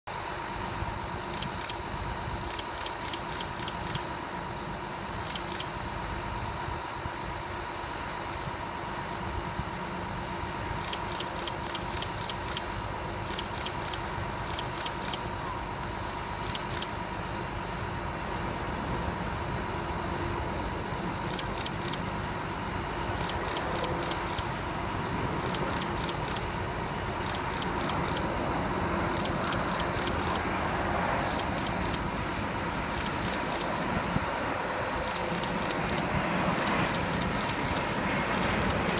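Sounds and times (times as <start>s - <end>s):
thin steady whine: 0.1s - 38.9s
airliner approaching: 0.2s - 38.9s
distant road traffic: 0.2s - 38.9s
quick high ticks: 2.5s - 4.1s, 5.2s - 5.7s, 10.8s - 15.3s, 16.4s - 17.0s, 21.3s - 22.1s, 23.2s - 24.6s, 25.4s - 26.5s, 27.2s - 28.4s, 29.1s - 30.5s, 31.2s - 32.1s, 32.9s - 33.8s, 35.0s - 38.9s.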